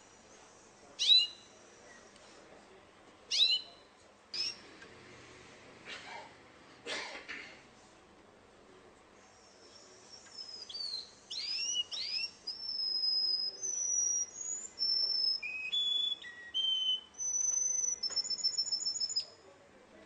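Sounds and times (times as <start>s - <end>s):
canary singing: 1.0s - 1.5s, 3.3s - 3.8s, 4.4s - 4.6s, 10.2s - 19.4s.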